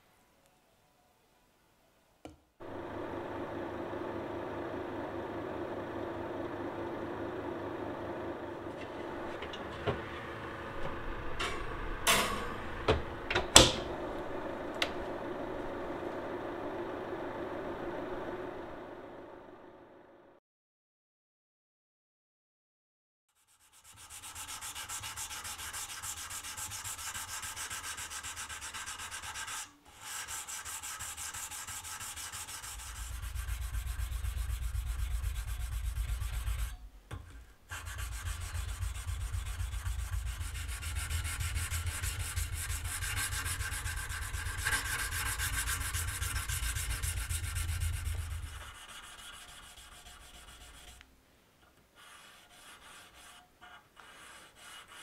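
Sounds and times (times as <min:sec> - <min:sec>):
sandpaper rubbing on steel: 0:23.3 - 0:36.8, 0:37.7 - 0:51.0, 0:52.0 - 0:55.0.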